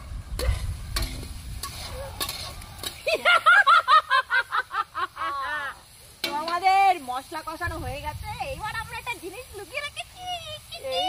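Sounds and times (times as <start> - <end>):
women laughing loudly: 3.0 - 5.8.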